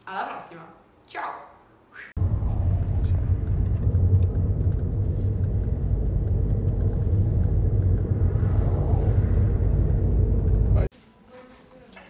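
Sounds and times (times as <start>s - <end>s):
vehicle rumbling: 2.2s - 10.9s.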